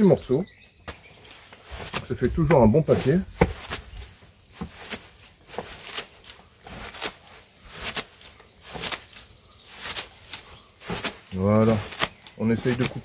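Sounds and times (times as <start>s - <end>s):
leaves rustling: 0.0s - 13.0s
hedge shears snipping: 3.4s - 13.0s.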